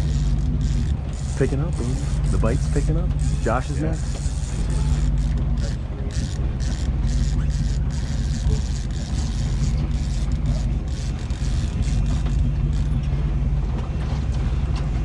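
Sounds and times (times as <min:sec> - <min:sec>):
boat engine drone: 0:00.0 - 0:15.0
water noise: 0:00.0 - 0:15.0.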